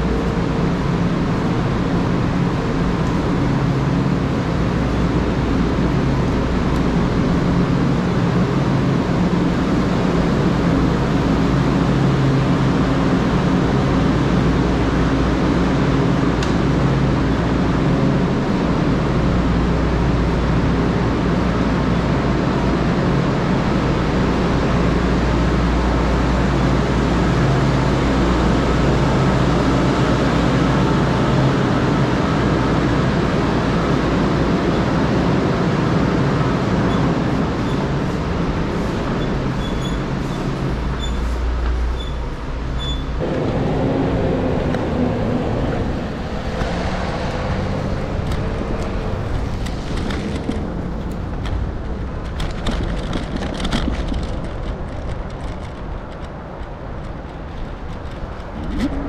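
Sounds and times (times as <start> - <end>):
traffic rumble: 0.0 - 59.0.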